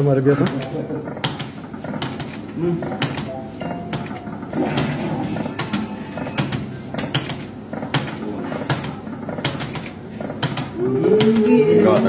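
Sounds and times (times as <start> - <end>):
machine music: 2.7 - 8.1
slot machine electronic tones: 3.3 - 7.6.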